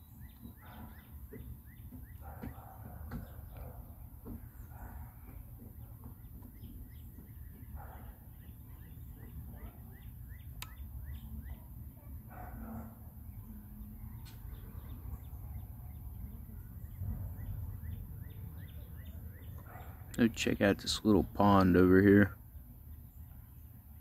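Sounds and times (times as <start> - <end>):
small birds chirping: 0.0 - 24.0.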